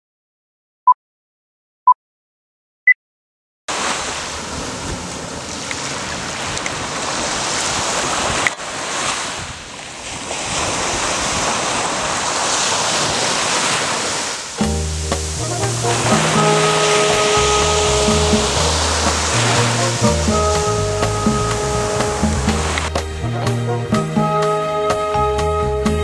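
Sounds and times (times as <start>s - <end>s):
small waves washing on sand: 3.7s - 23.0s.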